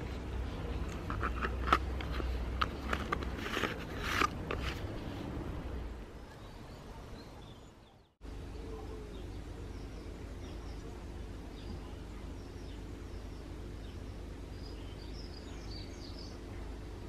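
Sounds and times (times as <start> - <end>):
faint outdoor ambience: 0.0 - 17.0
plastic clicks: 0.9 - 4.8
plastic scraping rasps: 0.9 - 4.9.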